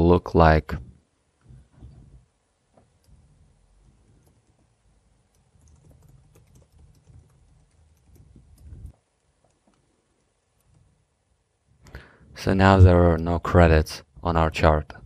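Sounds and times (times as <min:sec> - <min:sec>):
faint keyboard typing: 0:02.7 - 0:11.1.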